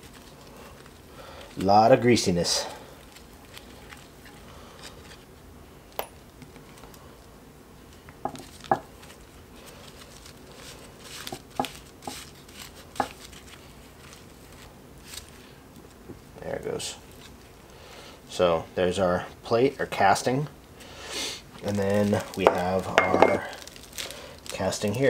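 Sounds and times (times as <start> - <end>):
plastic sheeting rustling: 0.0 - 5.3, 8.4 - 16.0, 21.5 - 25.0.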